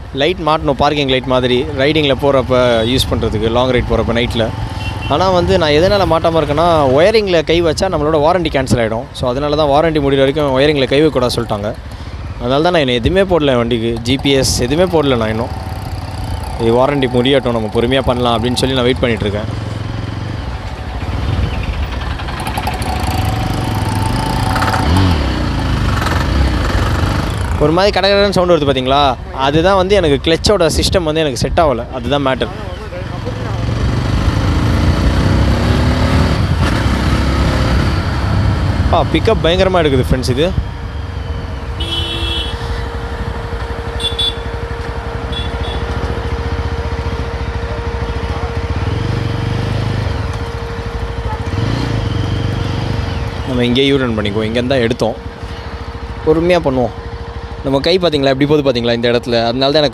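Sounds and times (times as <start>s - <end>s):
motorcycle engine running: 9.4s - 28.9s, 32.7s - 59.8s.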